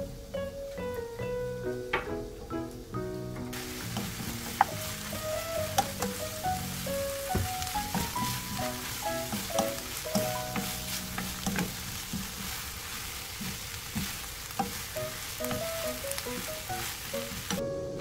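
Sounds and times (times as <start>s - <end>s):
food sizzling in a frying pan: 3.5s - 17.6s
spatula scraping a pan: 3.6s - 17.6s.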